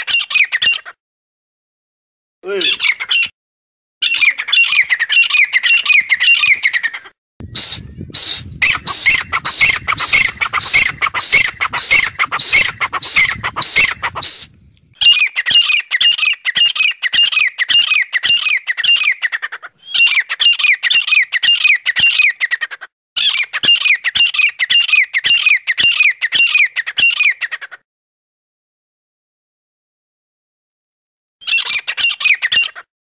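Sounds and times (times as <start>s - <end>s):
francolins calling: 2.6s - 3.3s, 4.0s - 27.8s.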